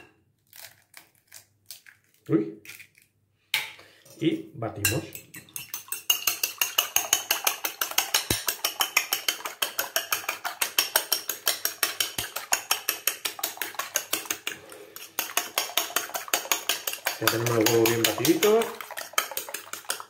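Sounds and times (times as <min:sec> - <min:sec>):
fork beating eggs in bowl: 0:04.8 - 0:20.0.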